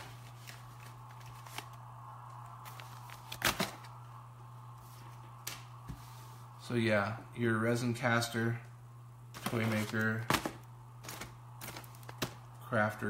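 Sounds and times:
plastic crackle: 0:00.0 - 0:04.1, 0:09.4 - 0:12.6
steady low hum: 0:00.0 - 0:13.0
plastic pouches handled in cardboard box: 0:09.4 - 0:12.4.

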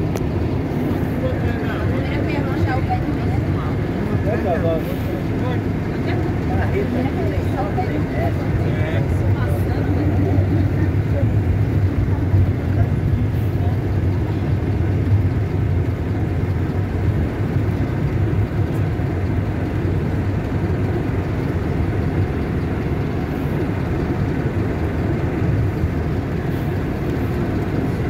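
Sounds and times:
vehicle engine and road rumble: 0:00.0 - 0:28.0.

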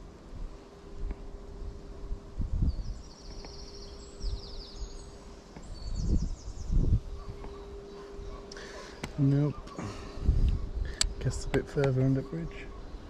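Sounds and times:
wind buffeting microphone: 0:00.3 - 0:04.9, 0:05.6 - 0:12.1
songbird trilling: 0:02.6 - 0:13.0.

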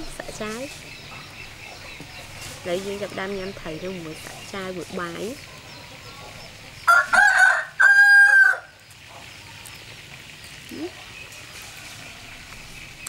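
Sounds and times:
rooster crowing: 0:06.8 - 0:08.8, 0:11.3 - 0:12.6.

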